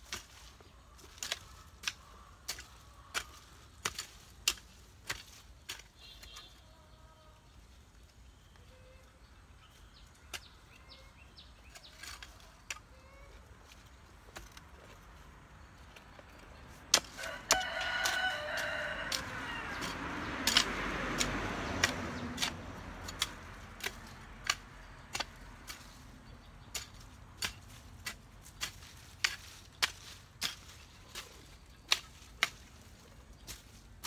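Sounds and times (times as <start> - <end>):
hoe chopping into soil: 16.8 - 26.0, 26.6 - 34.0
rooster crowing: 17.1 - 20.0.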